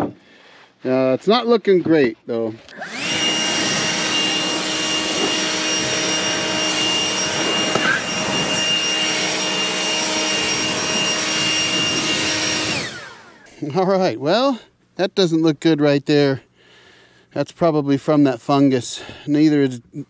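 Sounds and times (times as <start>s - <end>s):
dust blower running: 2.6s - 13.9s.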